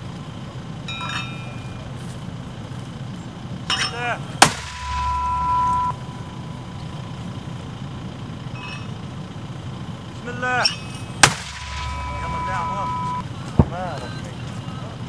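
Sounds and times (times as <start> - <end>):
high ringing tone: 0.8 - 2.1, 3.7 - 7.3, 8.5 - 9.1, 10.6 - 13.2
mortar firing blast: 4.4 - 5.1, 11.2 - 12.3.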